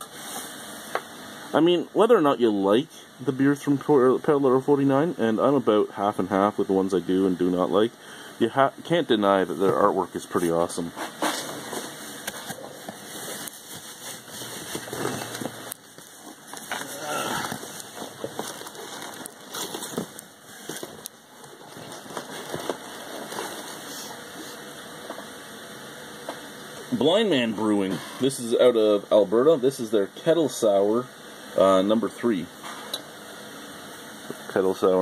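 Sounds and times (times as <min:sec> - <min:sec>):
packing peanuts rustling: 0:09.6 - 0:24.6.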